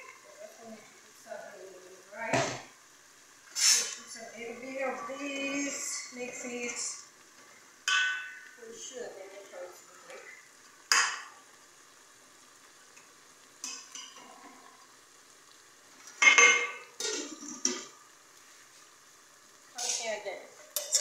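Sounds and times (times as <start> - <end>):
spoon scraping a metal pot: 3.6 - 4.1, 19.8 - 20.1, 20.7 - 21.0.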